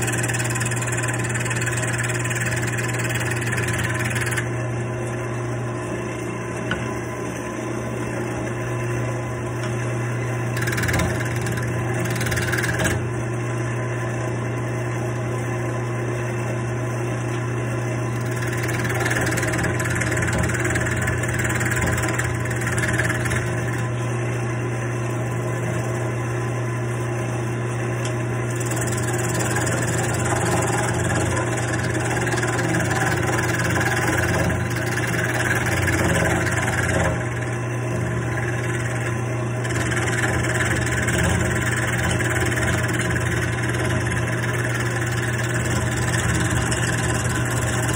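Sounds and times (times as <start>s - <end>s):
turning tool scraping wood: 0.0s - 5.2s, 10.4s - 13.1s, 18.1s - 24.0s, 28.5s - 47.9s
wood lathe motor hum: 0.0s - 47.9s.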